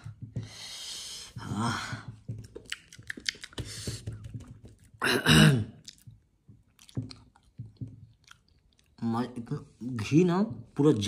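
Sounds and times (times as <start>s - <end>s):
person chewing flatbread: 2.4s - 5.0s, 5.8s - 9.0s.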